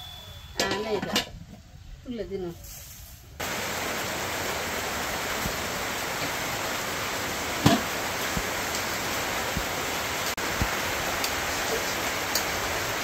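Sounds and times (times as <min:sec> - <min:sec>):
steady rain hiss: 0:01.4 - 0:13.0
water drips: 0:03.4 - 0:12.6.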